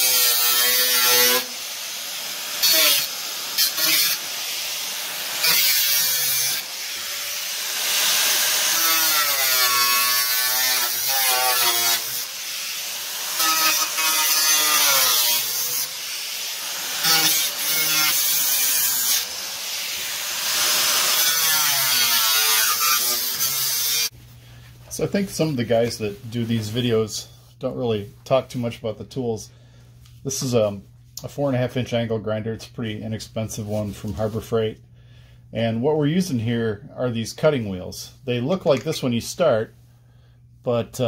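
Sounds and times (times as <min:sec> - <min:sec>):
angle grinder cutting metal: 0:00.0 - 0:24.1.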